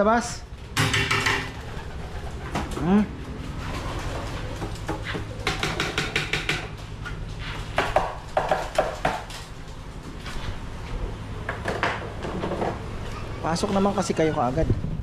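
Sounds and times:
pigeon wings flapping: 0.9 - 5.6.

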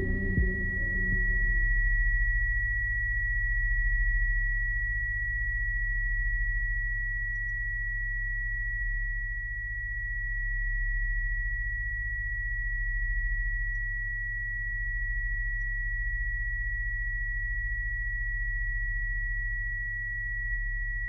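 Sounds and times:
high-pitched pure tone: 0.0 - 4.0
low droning hum: 0.0 - 13.4.

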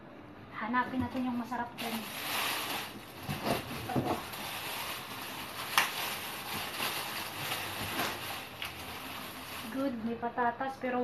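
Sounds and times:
rummaging in cardboard box: 1.8 - 9.9.

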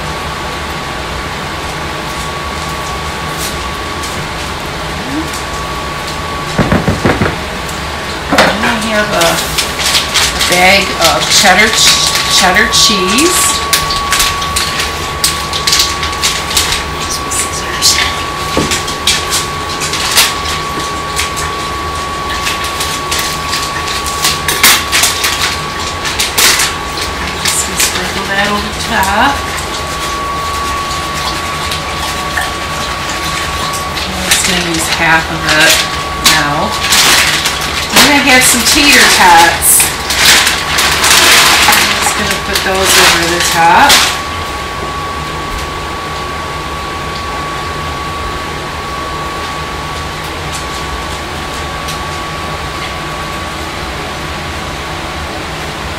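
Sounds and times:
thin high hum: 0.0 - 55.9
plastic bag crinkling: 8.5 - 44.3.

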